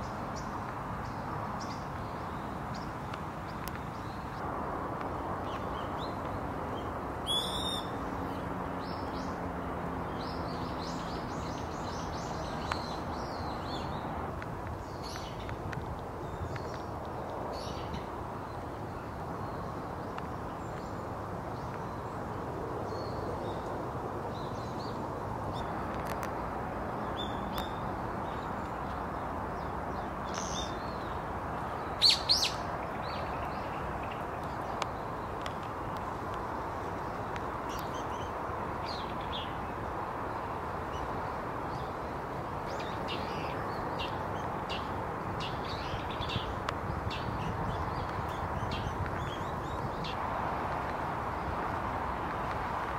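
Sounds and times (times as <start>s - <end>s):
birds chirping and trilling: 27.1s - 36.2s.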